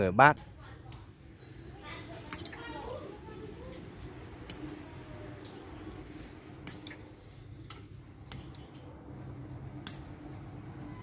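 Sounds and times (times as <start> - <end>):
spoon clinking against ceramic bowls: 2.3 - 2.7, 6.6 - 7.2, 8.2 - 8.8, 9.8 - 10.5.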